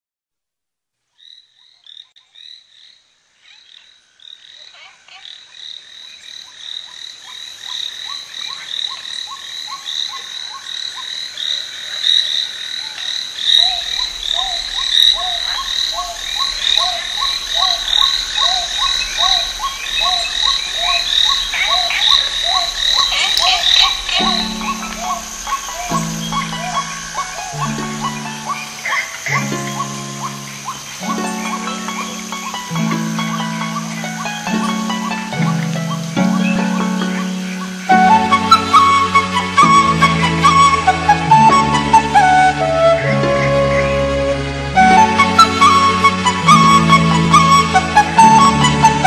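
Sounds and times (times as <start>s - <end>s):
frogs croaking: 1.1s - 49.0s
frogs chirping: 1.2s - 49.0s.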